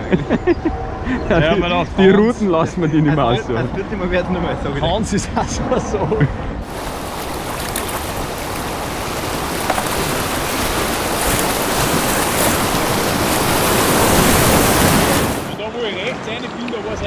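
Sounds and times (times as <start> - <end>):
whitewater rushing over weir: 6.7 - 15.6.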